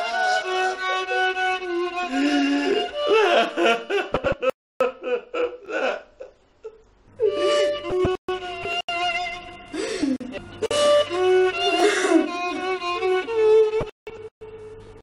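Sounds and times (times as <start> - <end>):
violin background music: 0.0 - 4.1, 7.2 - 15.0
man sobbing and whimpering: 2.1 - 6.3.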